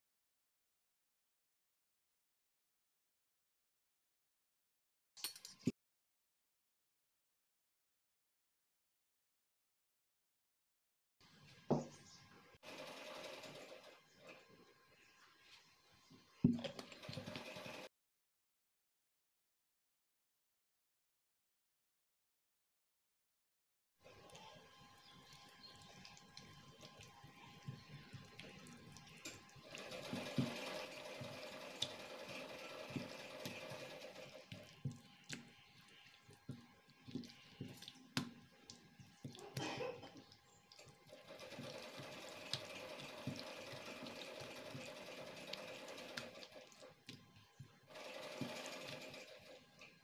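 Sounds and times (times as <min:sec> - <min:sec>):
wet squelching of marinating chicken: 0:24.1 - 0:47.8.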